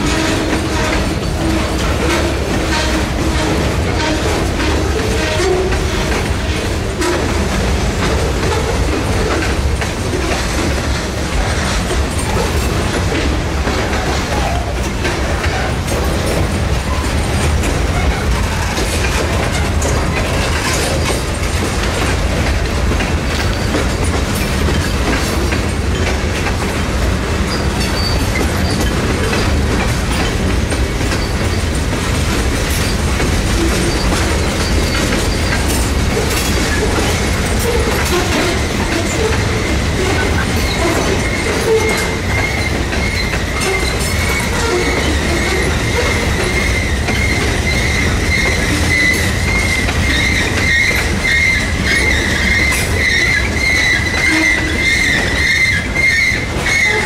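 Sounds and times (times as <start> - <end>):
freight train wheels rumbling: 0.0 - 57.0
wheels clicking over rail joints: 0.0 - 57.0
high wheel squeal: 27.5 - 29.0, 33.6 - 57.0.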